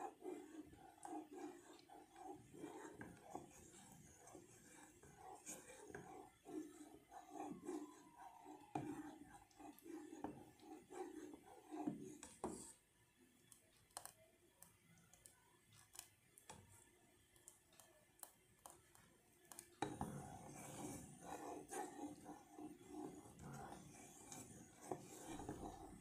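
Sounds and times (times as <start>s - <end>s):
spoon scraping saucepan: 19.8s - 26.0s.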